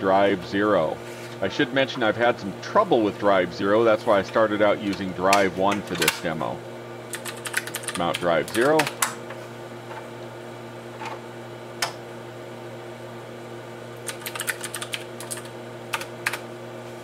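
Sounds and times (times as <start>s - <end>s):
steady low hum: 0.0s - 17.0s
keyboard keystrokes: 14.0s - 16.4s.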